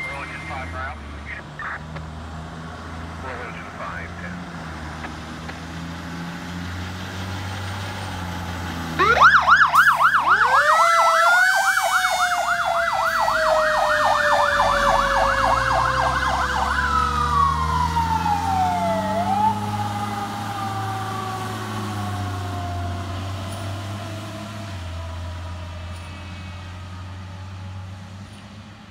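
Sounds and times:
electronic siren yelping: 0:09.0 - 0:21.6.

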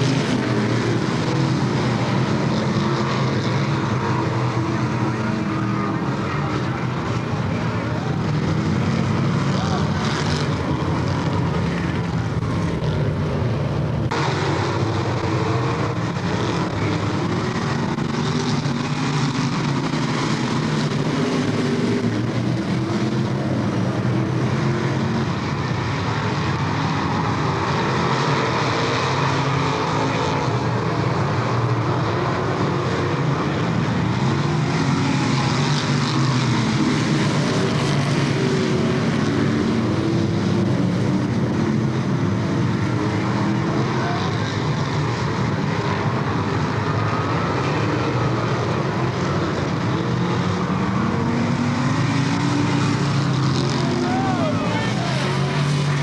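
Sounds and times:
race car engines running hard: 0:00.0 - 0:56.0.

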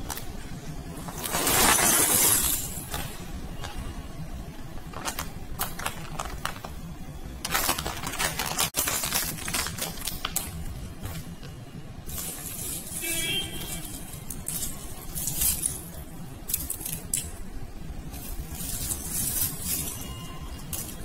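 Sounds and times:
potpourri rustling and clicking: 0:00.0 - 0:04.0, 0:04.6 - 0:21.0
plastic bag crinkling: 0:04.6 - 0:11.5, 0:12.1 - 0:21.0.

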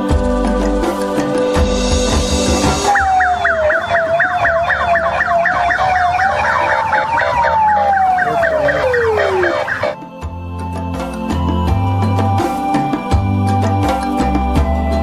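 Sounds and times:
police siren yelp: 0:02.8 - 0:10.0
siren wailing tone: 0:02.9 - 0:10.0.

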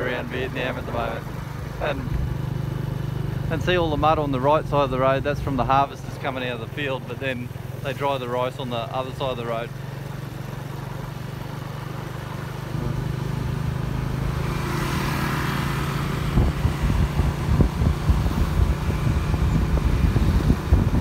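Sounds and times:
motorbike engine running: 0:00.0 - 0:21.0
wind buffeting microphone: 0:15.4 - 0:21.0.

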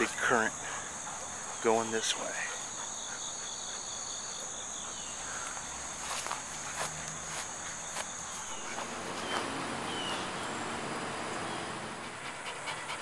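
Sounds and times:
insects trilling: 0:00.0 - 0:13.0
footsteps clicking and scuffing: 0:05.4 - 0:09.6.

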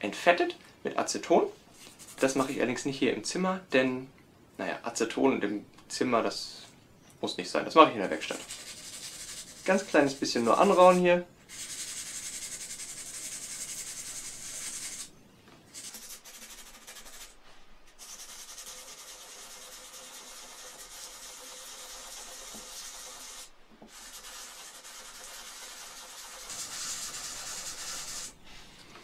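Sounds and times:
sandpaper scratching on steel: 0:08.0 - 0:15.1, 0:15.7 - 0:28.4.

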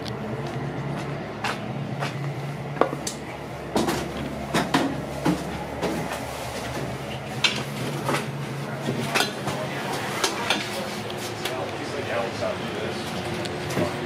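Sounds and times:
steady low hum: 0:00.0 - 0:14.0
footsteps on metal steps: 0:00.4 - 0:09.4.

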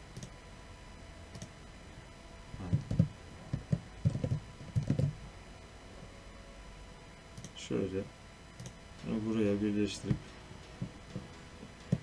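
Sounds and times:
computer keyboard typing: 0:02.7 - 0:05.2.

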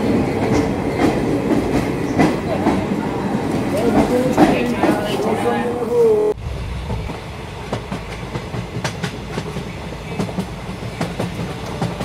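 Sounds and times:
train wheels clattering on rails: 0:00.0 - 0:05.4, 0:06.6 - 0:12.0.

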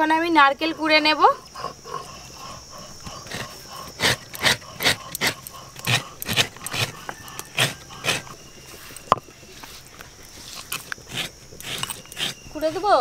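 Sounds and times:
coconut scraping on grater: 0:03.3 - 0:08.4, 0:10.4 - 0:13.0.

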